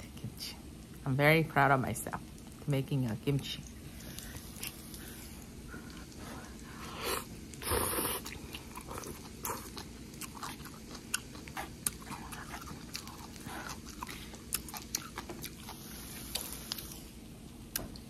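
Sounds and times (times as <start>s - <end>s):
wet chewing with smacks: 8.2s - 17.0s.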